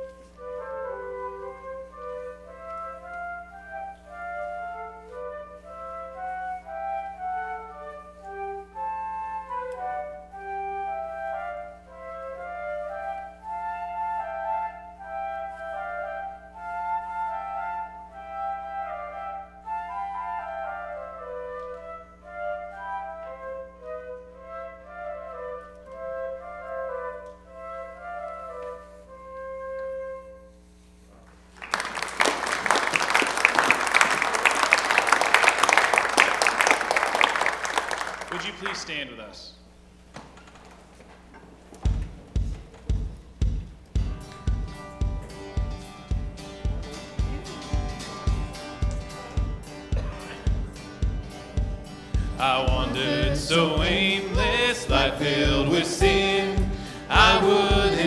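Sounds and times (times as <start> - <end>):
flute duet: 0.0 - 31.1, 44.1 - 58.0
low steady hum: 0.0 - 58.0.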